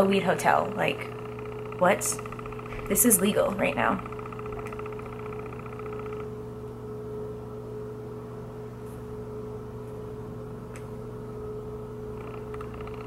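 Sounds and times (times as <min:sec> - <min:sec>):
fast pulsing buzz: 0:00.0 - 0:08.0, 0:11.8 - 0:13.0
electrical hum: 0:00.0 - 0:13.0.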